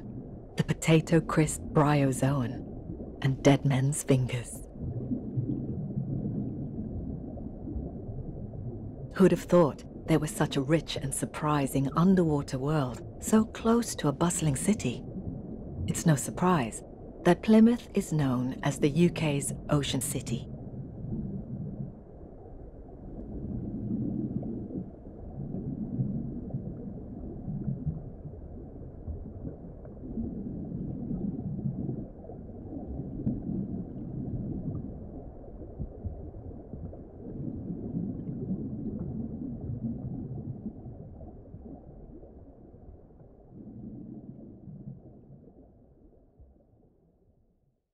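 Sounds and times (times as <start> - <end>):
deep underwater rumbling: 0.0 - 47.9.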